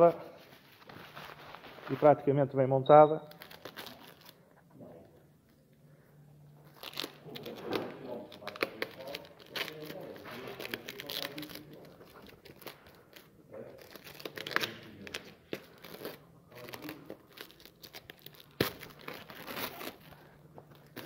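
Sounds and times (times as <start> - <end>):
plastic film crinkling and tearing: 3.3 - 4.4, 6.6 - 21.0.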